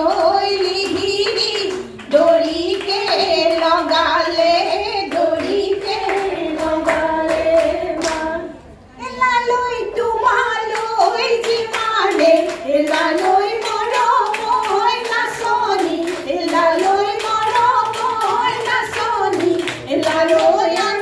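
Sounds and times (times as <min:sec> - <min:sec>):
group clapping hands: 0:00.0 - 0:08.6, 0:10.2 - 0:21.0
women singing into a microphone: 0:00.0 - 0:21.0.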